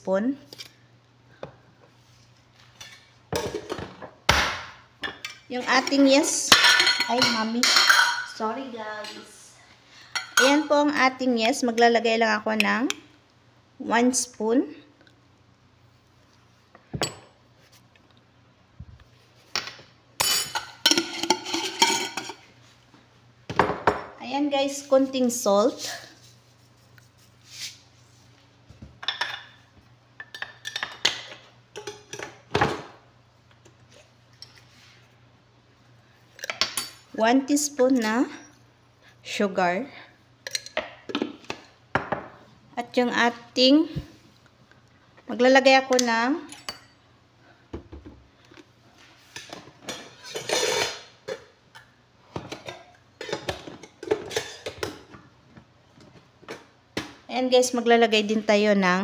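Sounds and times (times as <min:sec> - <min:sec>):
spoon and containers clinking: 0:05.0 - 0:08.4, 0:20.2 - 0:22.4.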